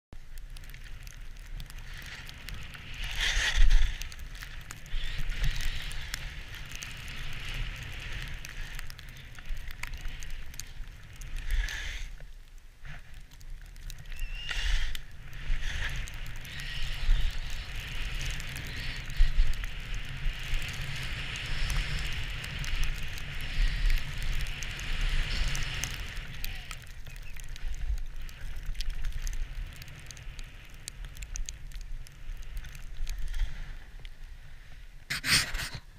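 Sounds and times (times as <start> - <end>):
low wind rumble on microphone: 0.2 - 35.9
skis hissing through snow: 11.4 - 12.1, 14.3 - 26.7, 34.5 - 35.9.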